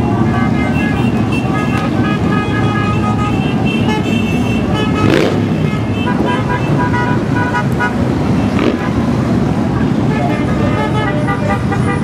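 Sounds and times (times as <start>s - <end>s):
horn toots: 0.1s - 9.1s
motorcycles rumbling past: 4.9s - 6.4s, 8.2s - 9.4s.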